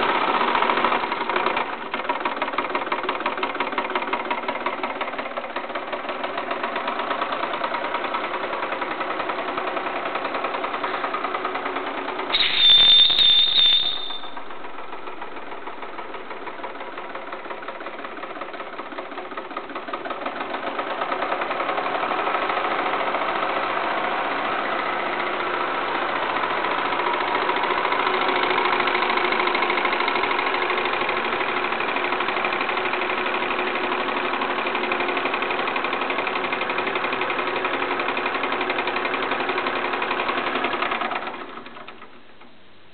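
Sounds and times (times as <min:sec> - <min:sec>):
toy steam engine running: 0:00.4 - 0:23.7
high-pitched steam whistle: 0:12.3 - 0:14.5.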